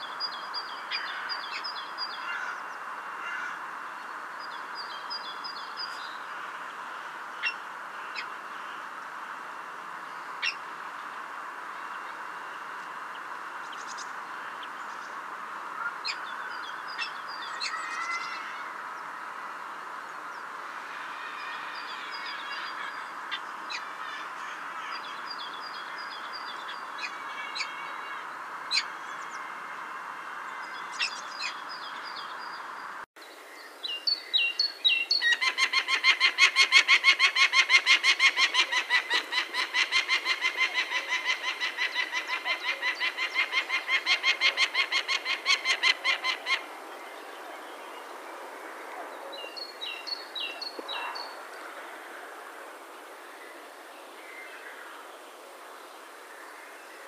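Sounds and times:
steady hiss: 0.0s - 35.3s, 46.4s - 57.0s
small birds chirping: 38.0s - 51.8s.

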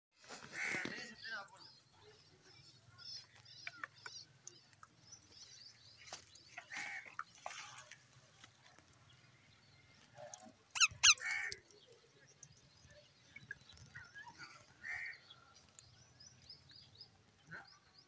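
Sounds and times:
parakeets chirping and screeching: 10.7s - 11.6s.

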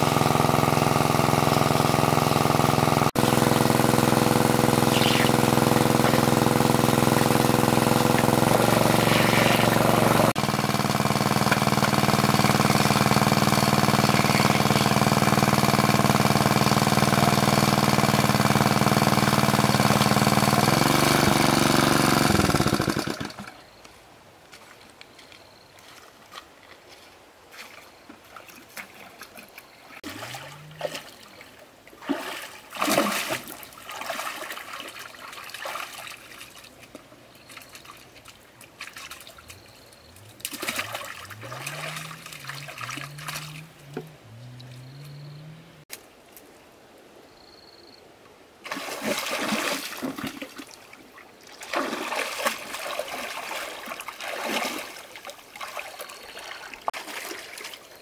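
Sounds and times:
low hum rising in pitch: 0.0s - 10.4s, 40.1s - 45.9s
water splashing and trickling: 25.8s - 45.6s, 48.6s - 58.0s.

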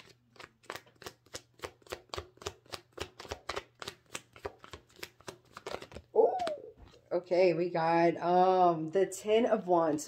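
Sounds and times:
cards being shuffled: 0.0s - 7.1s.

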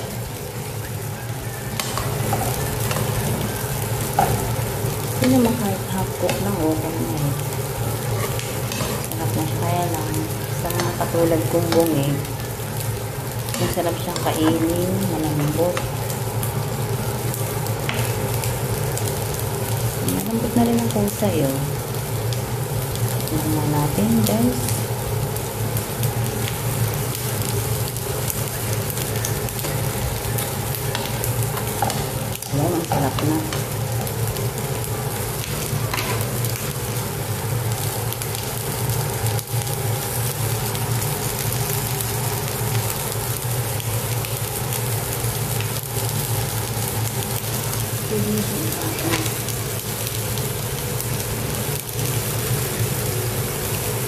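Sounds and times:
vegetables sizzling in a pan: 0.0s - 54.0s.

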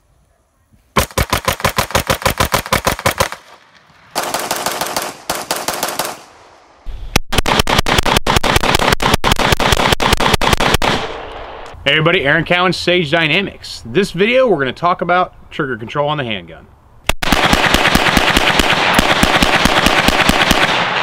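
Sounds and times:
pistol firing rapid shots: 1.0s - 6.5s, 7.3s - 11.2s, 17.2s - 21.0s.

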